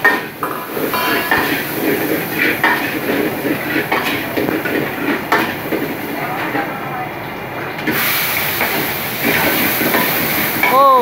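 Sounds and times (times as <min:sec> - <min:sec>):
metal ladle scraping a wok: 0:00.0 - 0:06.5
food sizzling: 0:00.0 - 0:11.0
gas burner roaring: 0:00.0 - 0:11.0.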